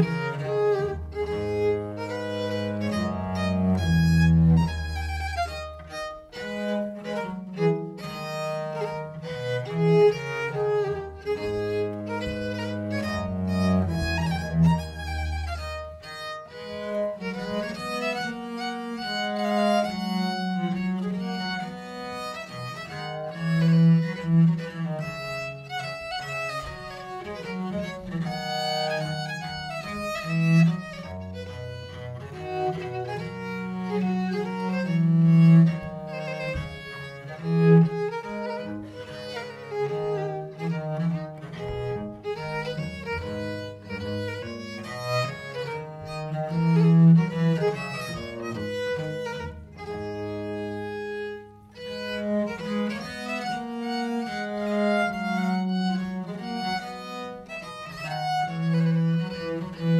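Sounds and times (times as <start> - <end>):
viola da gamba bass line: 0.0 - 59.9
violin melody: 0.0 - 59.9.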